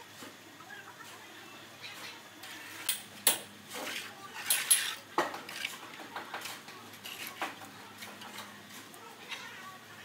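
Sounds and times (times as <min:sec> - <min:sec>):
trowel scraping mortar on concrete: 0:03.7 - 0:08.2.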